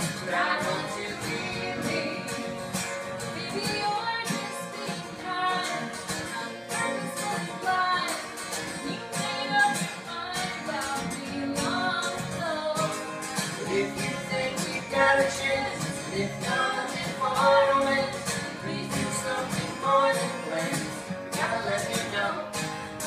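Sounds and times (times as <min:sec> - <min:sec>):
woman singing: 0:00.0 - 0:02.6, 0:03.2 - 0:22.6
man singing harmony: 0:00.0 - 0:02.7, 0:13.6 - 0:23.0
acoustic guitars strumming: 0:00.0 - 0:23.0.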